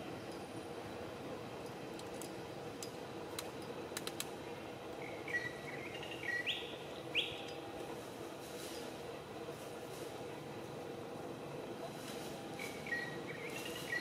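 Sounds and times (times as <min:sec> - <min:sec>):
steady low hum: 0:00.0 - 0:14.0
bird chirping: 0:05.0 - 0:07.6, 0:12.6 - 0:14.0.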